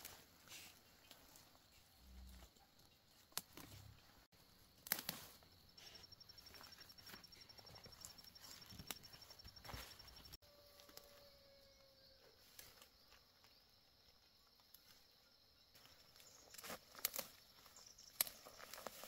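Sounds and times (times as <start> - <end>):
leaves rustling: 0.0 - 11.2, 15.8 - 19.0
plant stems snapping: 3.3 - 3.8, 4.8 - 5.4, 16.5 - 17.4, 18.1 - 19.0.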